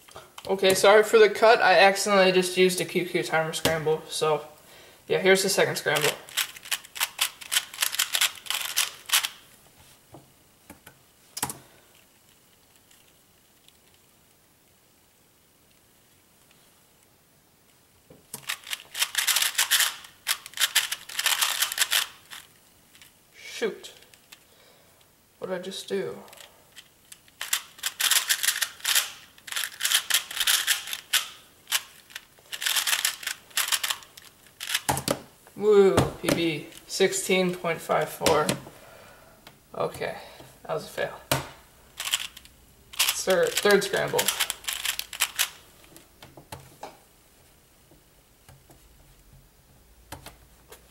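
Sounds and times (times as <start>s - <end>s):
puzzle cube clicking: 5.9s - 9.4s, 18.3s - 23.1s, 26.3s - 35.2s, 42.0s - 45.6s.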